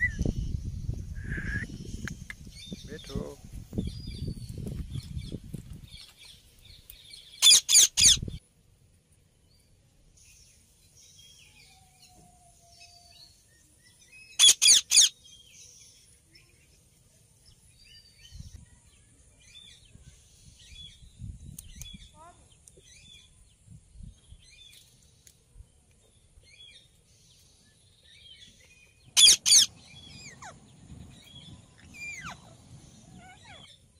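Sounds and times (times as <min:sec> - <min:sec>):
parakeets screeching: 0:07.4 - 0:08.4, 0:14.4 - 0:15.1, 0:29.2 - 0:30.7, 0:31.8 - 0:33.8.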